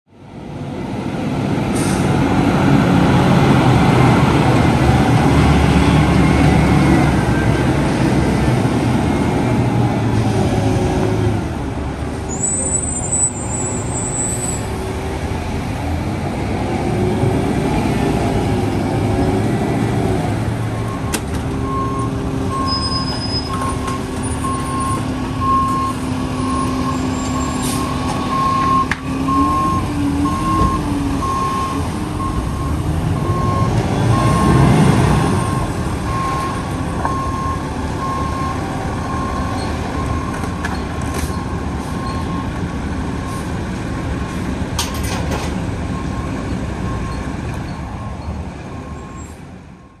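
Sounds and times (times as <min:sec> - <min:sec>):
diesel engine running: 0:14.6 - 0:49.8.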